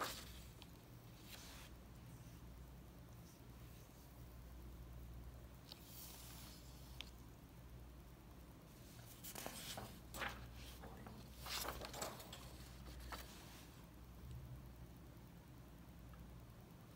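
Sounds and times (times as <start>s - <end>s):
paper pages rustling: 0.0s - 1.7s, 8.8s - 13.8s
faint low hum: 0.0s - 16.9s.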